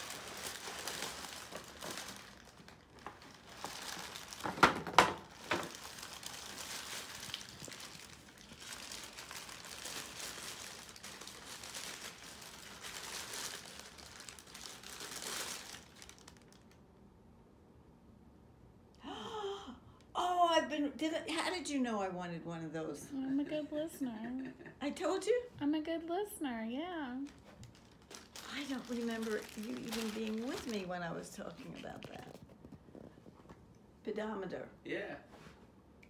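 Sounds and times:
tissue paper crinkling: 0.0 - 16.8, 27.2 - 33.1.

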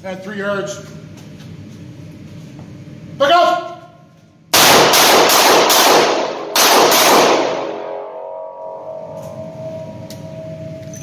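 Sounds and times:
revolver gunshot echoing: 4.6 - 9.1.

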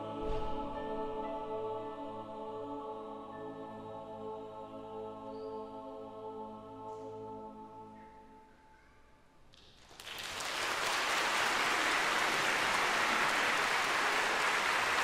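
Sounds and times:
choir holding chord: 0.0 - 8.6, 11.2 - 15.0
audience applause: 9.8 - 15.0.

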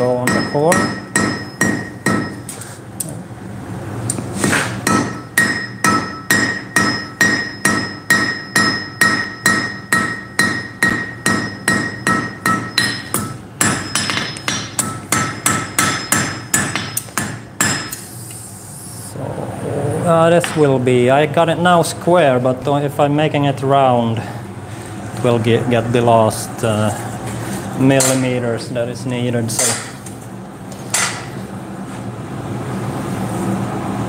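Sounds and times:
hammer striking hot iron on anvil: 0.0 - 2.6, 4.4 - 18.1, 28.0 - 28.4, 29.5 - 30.0, 30.9 - 31.4.

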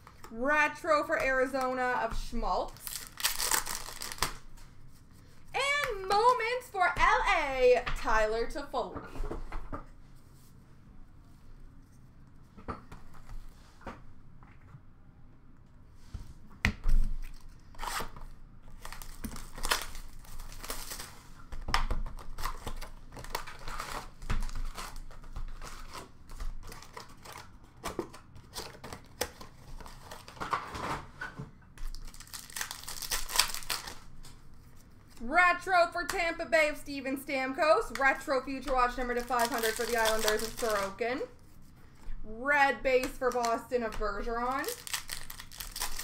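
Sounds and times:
plastic wrapping crinkling and tearing: 2.6 - 4.6, 18.7 - 21.4, 22.0 - 30.5, 31.8 - 34.3, 38.7 - 41.0, 43.0 - 46.0.

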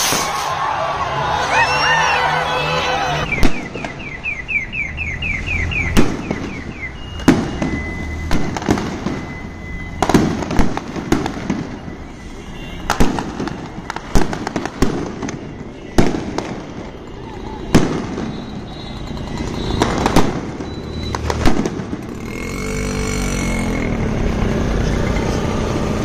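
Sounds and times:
fireworks bangs: 0.0 - 0.8, 3.2 - 4.2, 5.8 - 22.2.

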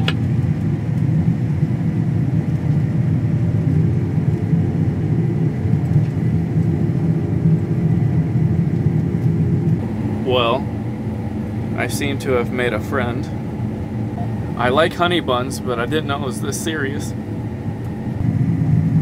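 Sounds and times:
combine harvester rumbling: 6.0 - 19.0.

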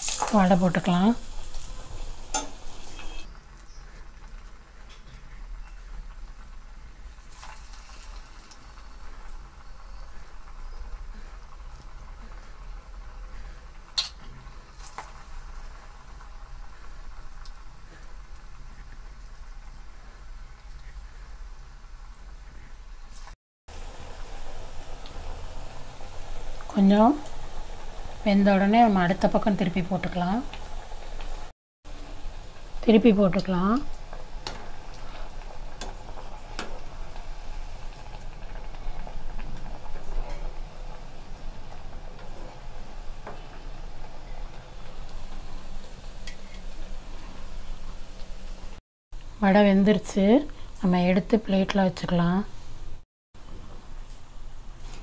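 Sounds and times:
oil bubbling and crackling: 0.0 - 48.8.

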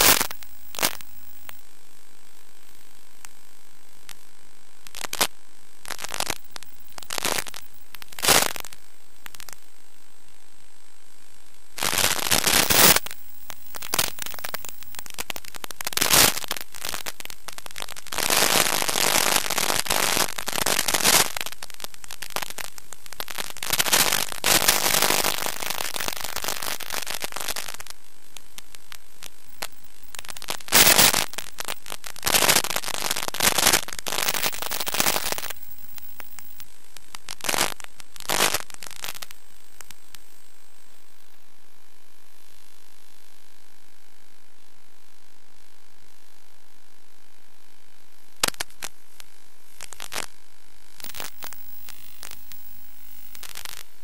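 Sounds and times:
radio signal crackling bursts: 0.0 - 1.7, 4.8 - 9.6, 11.8 - 27.9, 28.5 - 39.3, 51.0 - 54.0
static hiss: 0.0 - 41.5, 49.7 - 54.0.

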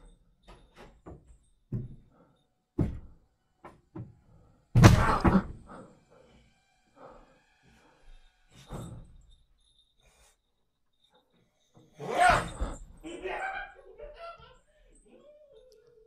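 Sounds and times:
irregular knocks and thumps: 0.0 - 2.2, 2.8 - 5.7.

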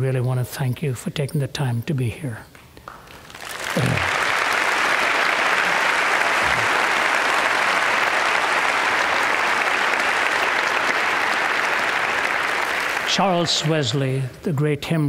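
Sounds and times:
audience applauding: 3.0 - 14.2
short calls from crowd: 3.7 - 4.4.

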